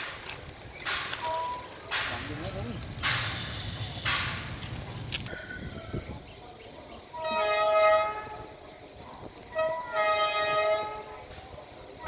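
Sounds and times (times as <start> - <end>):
train horn chord: 7.2 - 8.5, 9.5 - 11.1.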